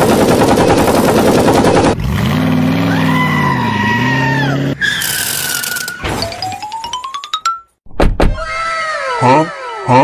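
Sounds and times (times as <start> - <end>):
tyre screech: 3.4 - 6.1.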